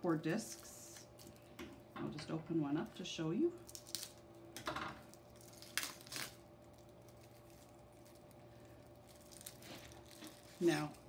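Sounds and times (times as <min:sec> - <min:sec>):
plastic rustling: 0:03.6 - 0:11.0
plastic wrap tearing: 0:03.6 - 0:11.0.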